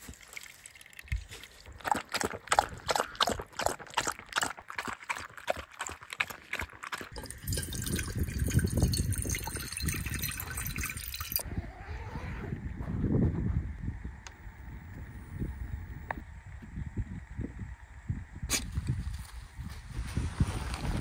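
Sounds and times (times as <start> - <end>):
water pouring into a funnel: 0.0 - 1.9, 6.8 - 11.4
water running into a metal pot: 7.0 - 11.4.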